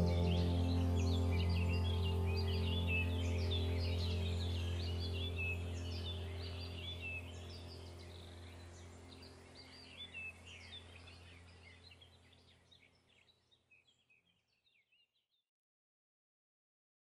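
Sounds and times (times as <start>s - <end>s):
low steady hum: 0.0s - 13.2s
small birds chirping and singing: 0.0s - 15.3s.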